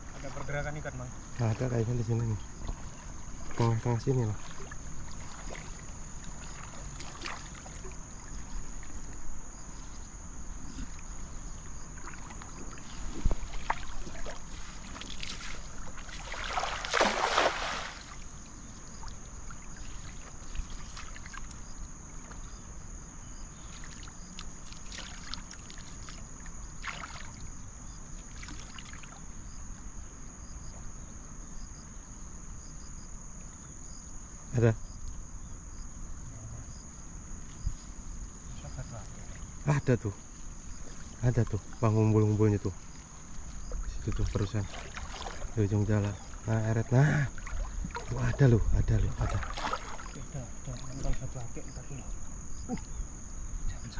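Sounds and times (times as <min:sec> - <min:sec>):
high-pitched insect trill: 0:00.0 - 0:53.9
net splashing into water: 0:04.4 - 0:08.3, 0:12.0 - 0:18.2, 0:23.7 - 0:26.2, 0:26.8 - 0:27.5, 0:28.3 - 0:29.2, 0:43.8 - 0:46.5, 0:47.1 - 0:48.4, 0:49.1 - 0:51.2.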